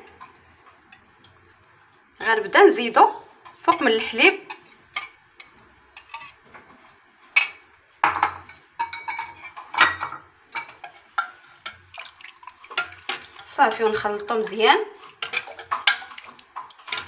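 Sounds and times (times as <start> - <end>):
metal spoon clinking against pot: 8.4 - 11.9, 15.0 - 17.0.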